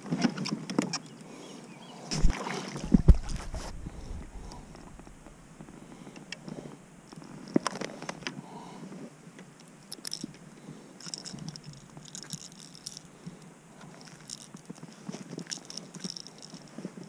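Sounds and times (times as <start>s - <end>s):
lure and hooks clicking: 9.6s - 10.4s, 11.0s - 16.7s.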